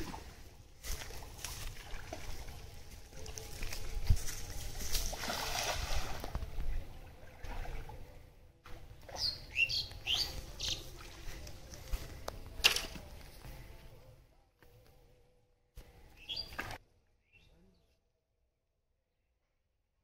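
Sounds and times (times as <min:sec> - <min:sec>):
net splashing into water: 0:00.9 - 0:02.7, 0:04.9 - 0:06.4
bird chirping: 0:09.2 - 0:10.9, 0:16.2 - 0:18.0.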